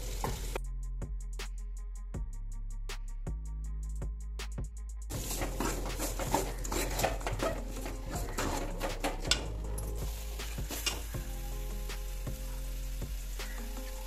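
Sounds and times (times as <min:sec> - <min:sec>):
metal ladle scraping a pan: 0:05.1 - 0:11.2
paste sizzling in oil: 0:05.1 - 0:14.0.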